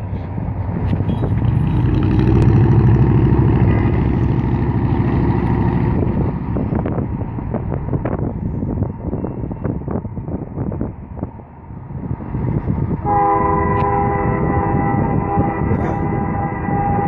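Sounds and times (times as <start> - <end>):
wind noise on microphone: 0.0 - 17.0
train air horn: 13.0 - 17.0.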